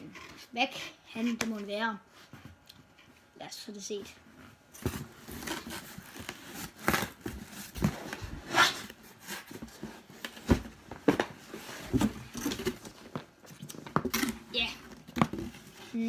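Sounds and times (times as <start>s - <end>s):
cardboard rustles and knocks: 9.4s - 14.2s.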